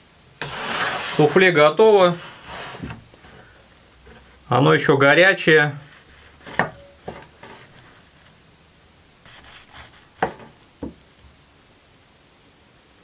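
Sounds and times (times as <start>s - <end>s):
knife slicing through crust: 5.8s - 8.3s, 9.3s - 10.6s
knife knocking on wooden board: 6.5s - 7.3s, 10.2s - 11.0s.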